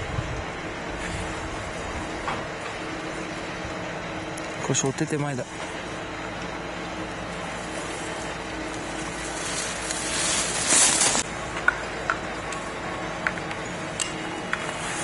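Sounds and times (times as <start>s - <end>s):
skis scraping on snow: 7.5s - 11.3s.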